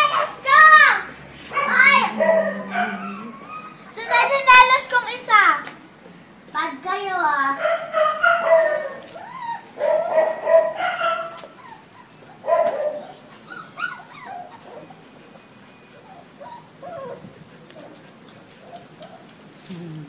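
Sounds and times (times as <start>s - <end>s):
puppies whining and yipping: 1.6s - 4.3s, 7.8s - 19.4s.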